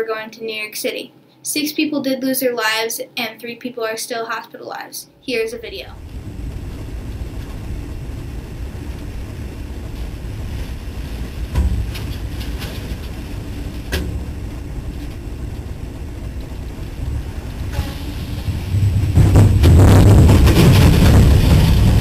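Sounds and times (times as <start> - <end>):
strong wind and rain buffeting: 5.3 - 22.0
sharp knocks: 11.5 - 13.2, 13.8 - 14.4.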